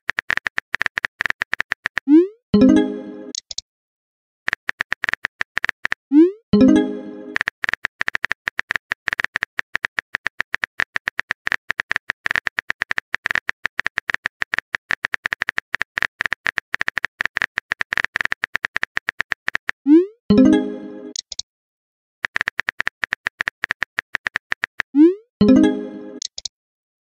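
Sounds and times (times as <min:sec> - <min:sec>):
phone keyboard typing clicks: 0:00.0 - 0:02.1, 0:04.5 - 0:06.0, 0:06.6 - 0:19.8, 0:22.2 - 0:25.6, 0:26.2 - 0:26.5.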